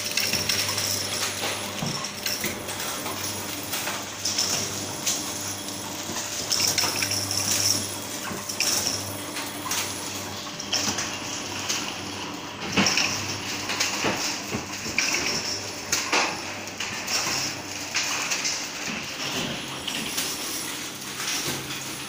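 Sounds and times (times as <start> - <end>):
packaging machine humming: 0.0 - 22.0
metallic clacks and clatter: 12.6 - 22.0.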